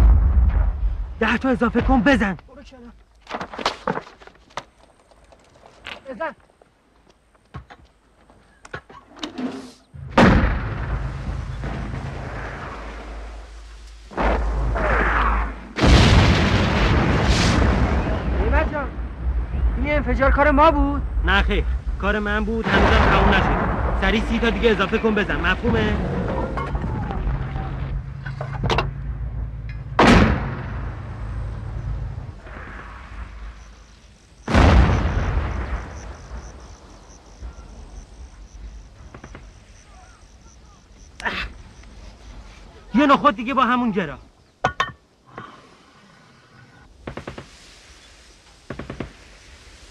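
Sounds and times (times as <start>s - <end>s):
artillery shell explosions: 10.0s - 13.5s, 14.1s - 20.4s, 21.0s - 40.4s
low rumble: 10.0s - 33.9s.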